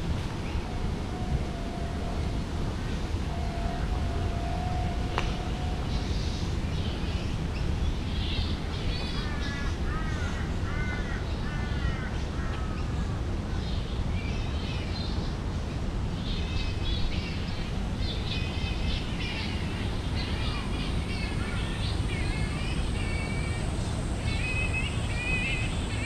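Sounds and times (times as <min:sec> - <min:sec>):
birds chirping: 0:16.3 - 0:26.0.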